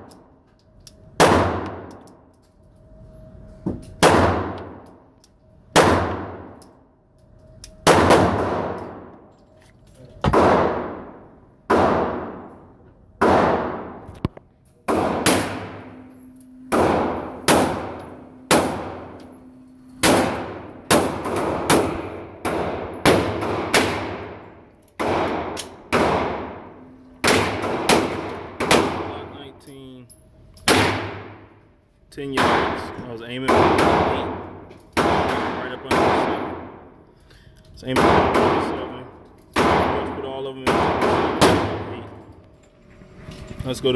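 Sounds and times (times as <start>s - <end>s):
pistol shots with echo: 5.7s - 6.6s, 7.8s - 9.1s, 10.3s - 12.6s, 13.2s - 14.0s, 14.9s - 16.0s, 16.7s - 19.2s, 20.0s - 29.4s, 30.7s - 31.4s, 32.3s - 36.9s, 37.9s - 42.2s.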